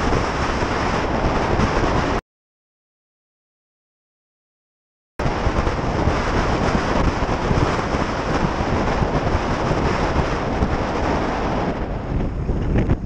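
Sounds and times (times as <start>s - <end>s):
wind buffeting microphone: 0.0s - 2.2s, 5.2s - 13.0s.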